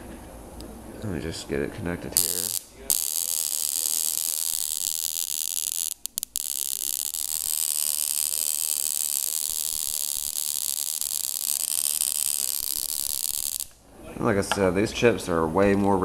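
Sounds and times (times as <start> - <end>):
high-pitched transformer whine and buzz: 2.2 - 13.8.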